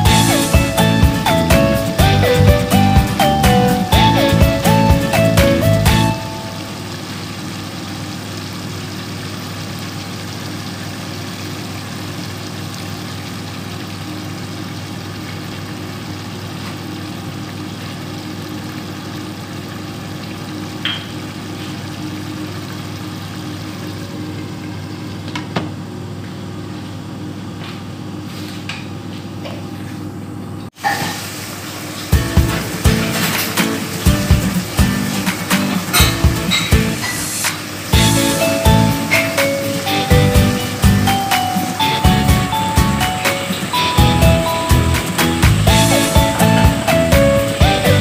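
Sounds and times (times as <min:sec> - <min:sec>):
liquid bubbling in a pot: 0:06.7 - 0:25.3.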